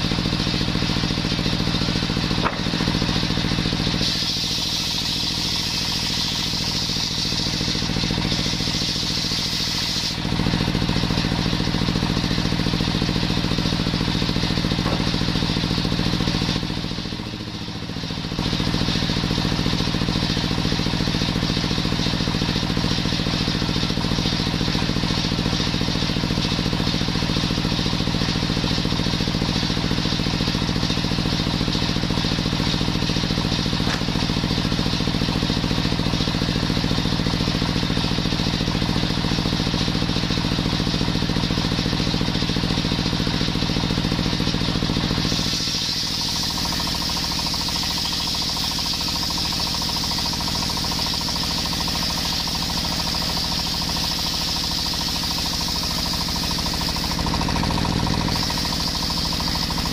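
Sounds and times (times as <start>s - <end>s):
stationary engine running: 0.0s - 59.9s
saw blade cutting wood: 1.7s - 11.3s, 12.2s - 16.9s, 32.8s - 35.2s, 44.5s - 49.5s, 50.1s - 59.9s.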